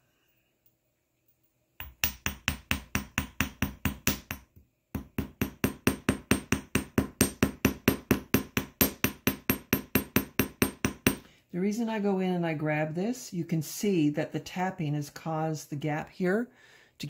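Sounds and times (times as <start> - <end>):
hammer tapping wire on metal: 1.8 - 11.3.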